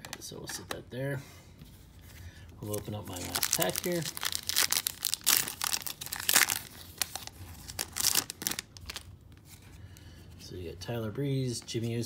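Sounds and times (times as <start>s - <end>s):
card pack wrapper tearing and crinkling: 2.6s - 9.2s.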